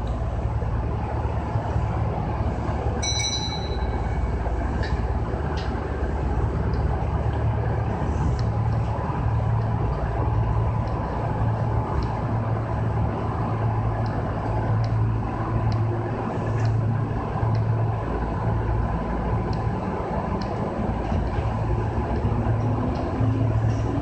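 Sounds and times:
train equipment hum: 0.0 - 24.0.

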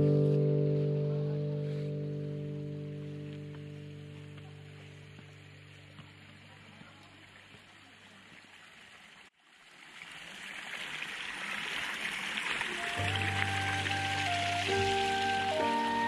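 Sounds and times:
background music: 0.0 - 4.9, 12.8 - 16.0
stream babbling: 2.4 - 16.0.

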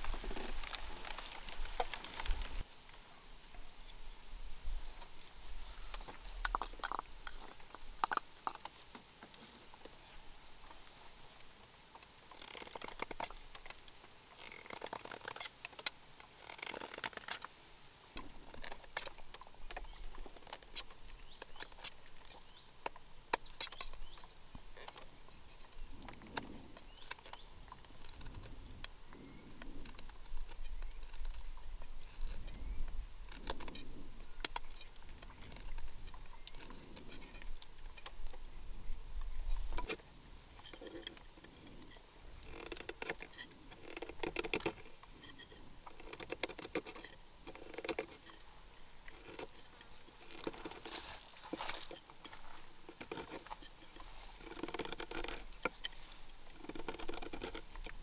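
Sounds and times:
knife scraping bamboo: 39.5 - 58.0.

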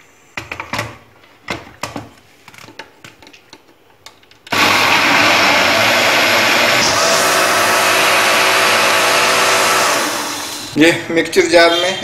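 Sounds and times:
mixer grinder blending: 4.5 - 10.8.

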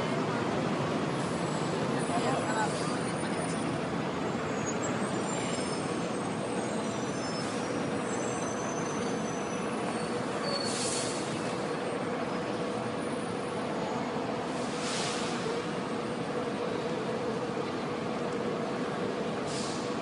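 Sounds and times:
city traffic engine hum: 0.0 - 20.0
brief hissing: 10.6 - 11.3, 14.6 - 15.4, 19.5 - 19.9.

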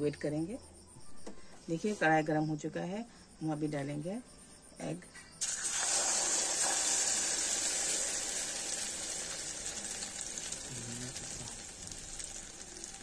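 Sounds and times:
egg sizzling in hot oil: 5.4 - 13.0.

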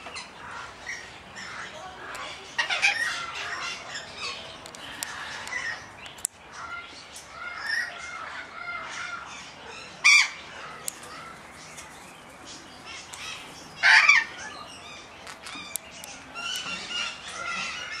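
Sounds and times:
parrots squawking: 0.1 - 5.9, 12.9 - 15.8.

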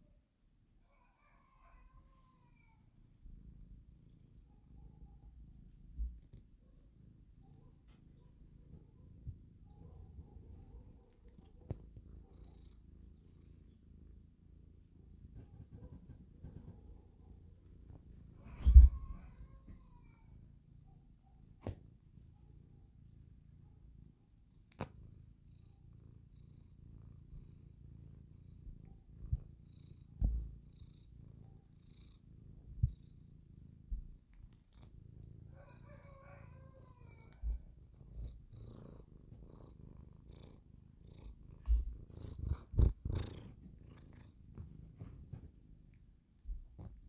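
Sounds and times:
cat purring: 1.8 - 47.0
soft low thumps: 41.6 - 43.2.

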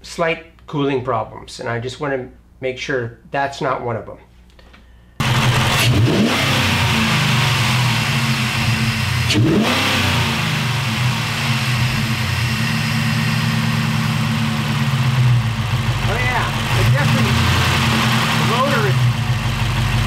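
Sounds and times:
car engine idling and revving: 5.2 - 20.0.

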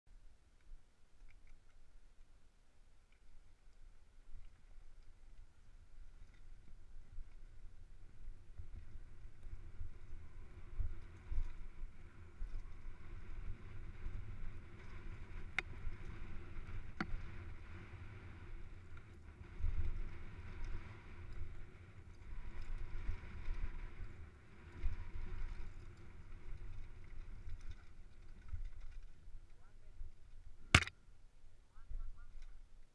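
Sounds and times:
bike trail vibration: 0.4 - 31.3
sharp clicks: 30.7 - 31.0.

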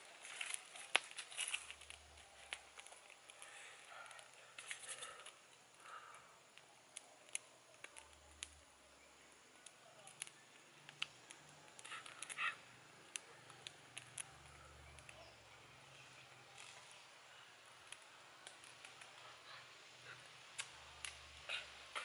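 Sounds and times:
sticks being handled: 0.0 - 5.8
campfire crackling: 0.0 - 22.0.

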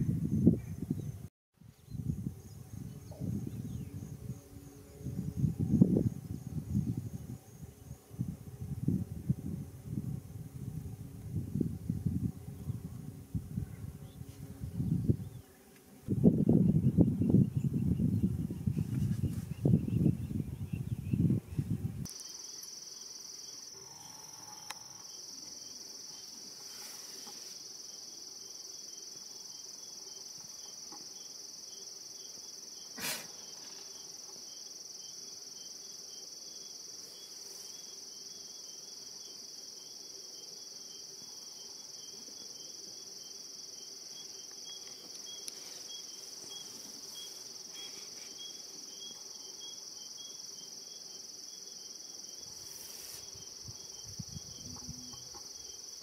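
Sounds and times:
faint pulsing chirp: 16.6 - 52.6, 53.2 - 56.0
crickets shrilling: 22.1 - 56.0.

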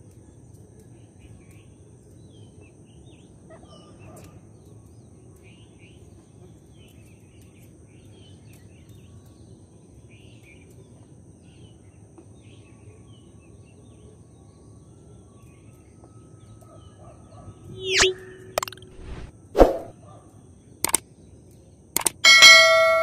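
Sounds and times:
bird chirps: 16.5 - 19.9
thin high tone: 17.7 - 19.9, 22.2 - 23.0
sound effect with rising sweeps: 17.8 - 19.9.

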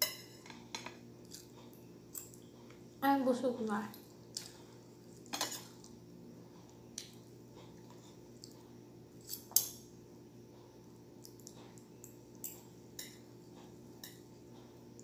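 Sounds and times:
cutlery scraping plate: 5.3 - 5.8.

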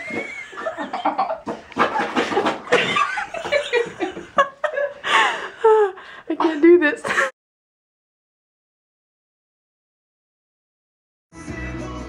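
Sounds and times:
people laughing: 0.0 - 7.3.

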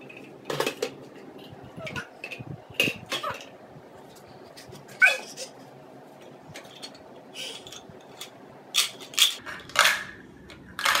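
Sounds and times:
plastic toys clattering: 0.0 - 3.5, 6.5 - 11.0.

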